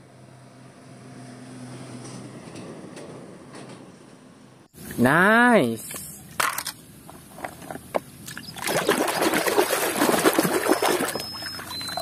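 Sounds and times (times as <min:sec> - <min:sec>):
water splashing in a tub: 0:08.2 - 0:12.0.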